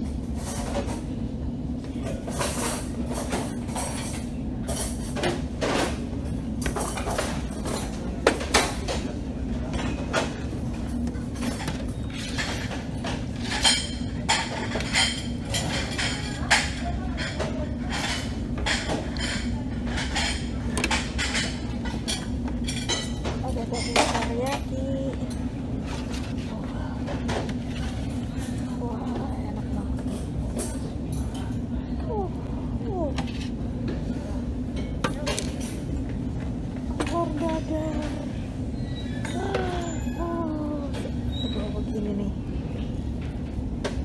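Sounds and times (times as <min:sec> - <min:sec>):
steady low hum: 0:00.0 - 0:44.0
metal utensils clinking on trays: 0:02.0 - 0:06.0, 0:06.6 - 0:26.5
background chatter: 0:13.7 - 0:21.9.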